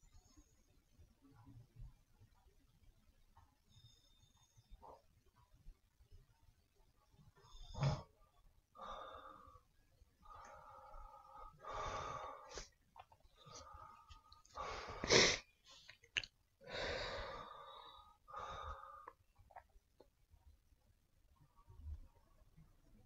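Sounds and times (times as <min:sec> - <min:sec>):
person breathing: 0:08.8 - 0:16.0, 0:16.6 - 0:19.3.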